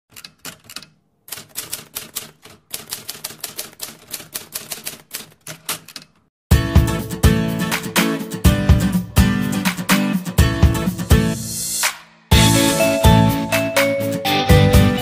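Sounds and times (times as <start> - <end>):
rapid typing clicks: 0.1 - 6.2.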